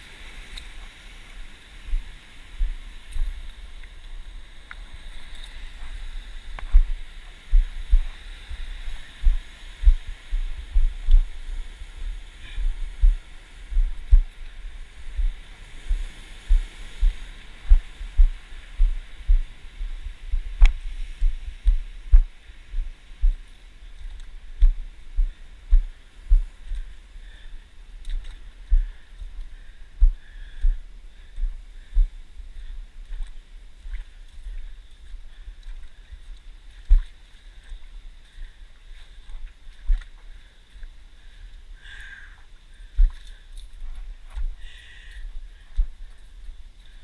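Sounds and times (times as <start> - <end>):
dull low thumps of camera: 4.7 - 27.0.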